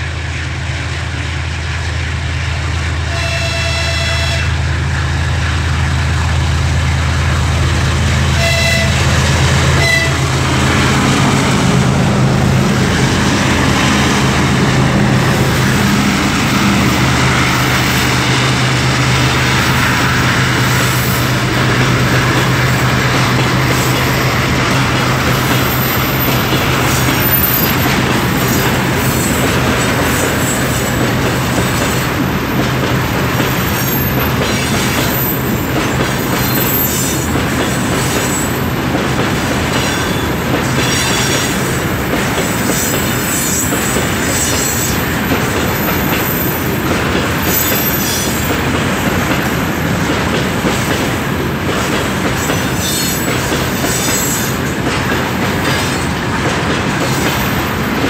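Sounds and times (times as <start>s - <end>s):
diesel locomotive engine drone: 0.0s - 58.0s
train horn: 3.0s - 4.8s, 8.3s - 10.4s
high wheel squeal: 36.2s - 38.7s, 39.8s - 41.6s, 47.4s - 48.5s.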